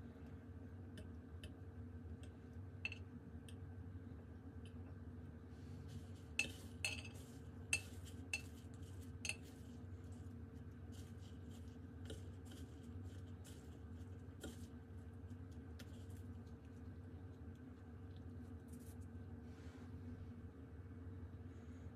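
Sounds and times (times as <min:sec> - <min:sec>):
faint steady hum: 0:00.0 - 0:21.9
light taps in breadcrumbs: 0:05.8 - 0:19.2.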